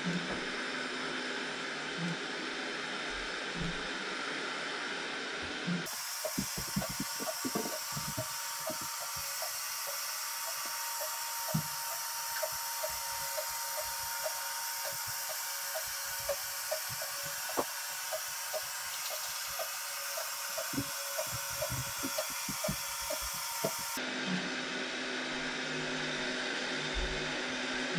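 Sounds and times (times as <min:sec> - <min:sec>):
robot vacuum motor whir: 0:05.7 - 0:24.4.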